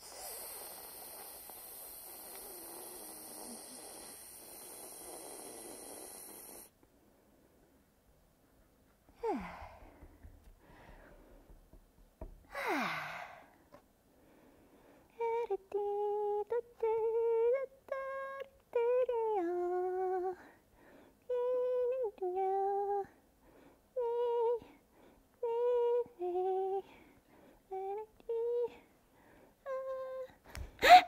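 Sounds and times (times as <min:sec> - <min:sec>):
woman humming: 0:00.0 - 0:06.6, 0:09.2 - 0:10.3, 0:12.5 - 0:13.5, 0:29.6 - 0:31.0.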